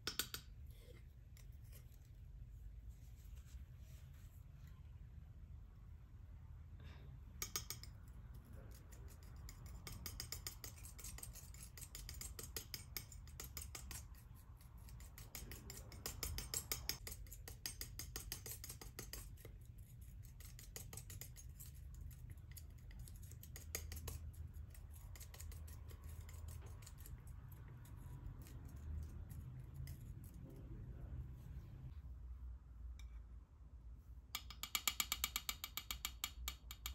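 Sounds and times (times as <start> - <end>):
palette knife scraping paint: 0.1 - 2.4, 7.6 - 30.6
low steady hum: 24.2 - 34.4.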